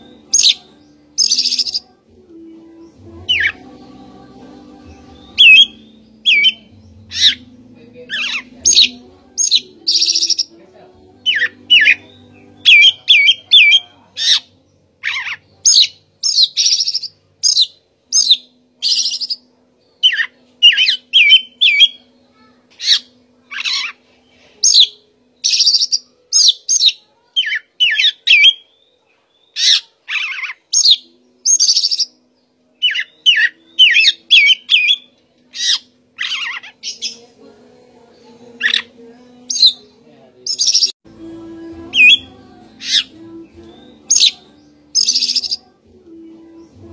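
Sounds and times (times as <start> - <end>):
bird singing varied whistled phrases: 1.2 - 1.8, 5.4 - 7.4, 20.0 - 22.0, 24.6 - 28.8, 29.4 - 32.1, 32.8 - 37.1, 45.0 - 45.6.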